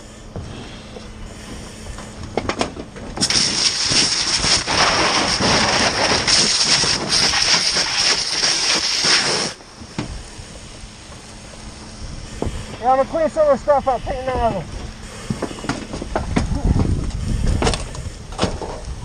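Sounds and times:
fire hose water stream hissing: 3.2 - 15.6.

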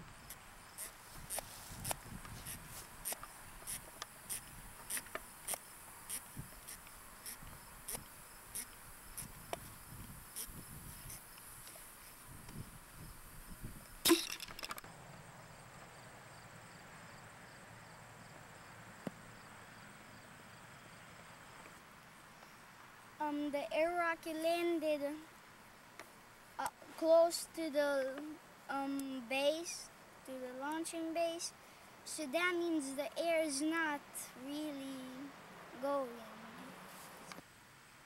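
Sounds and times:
crickets chirping: 0.0 - 23.2.

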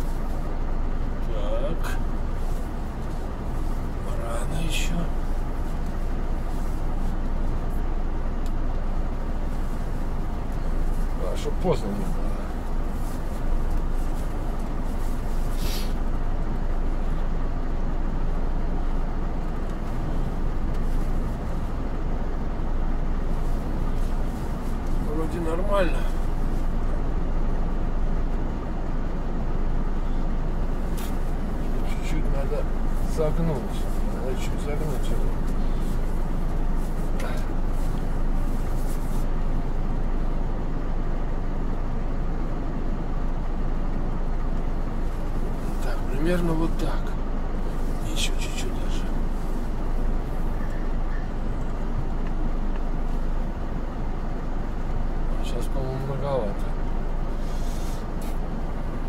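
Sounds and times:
truck diesel engine running: 0.0 - 59.0
brief hiss: 15.5 - 16.0.

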